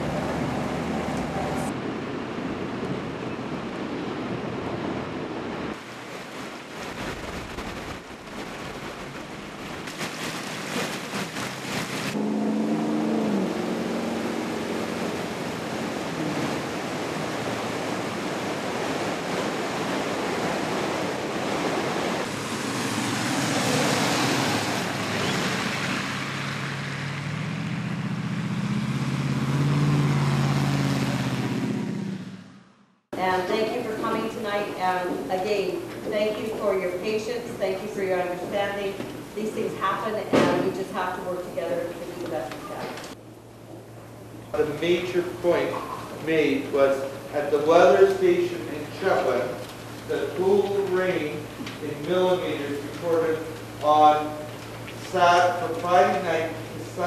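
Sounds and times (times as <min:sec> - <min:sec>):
floodwater rushing: 0:00.0 - 0:32.4, 0:36.6 - 0:57.0
low hum: 0:12.1 - 0:17.6.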